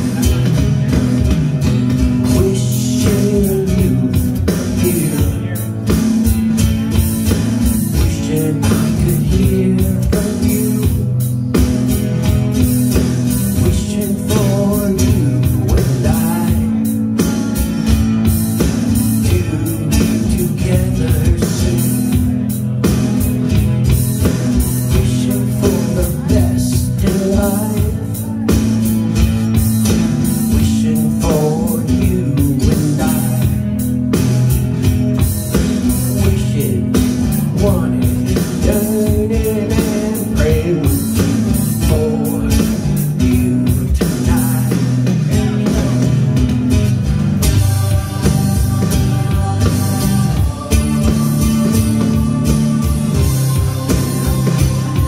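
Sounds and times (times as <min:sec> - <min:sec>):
electric guitar strumming: 0:00.0 - 0:55.0
steady beat: 0:00.0 - 0:55.0
man singing into a microphone: 0:02.1 - 0:06.0, 0:07.8 - 0:11.3, 0:13.2 - 0:17.2, 0:18.8 - 0:22.6, 0:24.6 - 0:28.8, 0:30.2 - 0:33.8, 0:35.5 - 0:46.4, 0:47.4 - 0:55.0.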